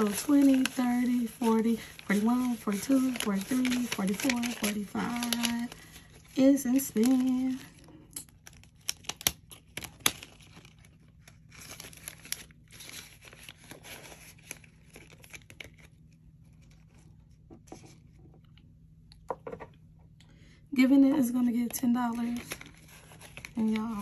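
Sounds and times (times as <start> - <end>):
paper banknotes rustling: 0.0 - 7.8, 8.6 - 17.1, 21.6 - 24.0
plastic envelope crinkling: 0.0 - 18.2, 21.1 - 24.0.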